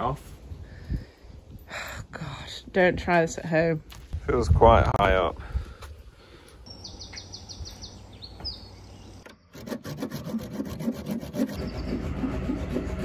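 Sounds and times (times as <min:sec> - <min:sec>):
small birds chirping: 0:05.8 - 0:09.5
hand saw cutting screws: 0:09.5 - 0:13.0.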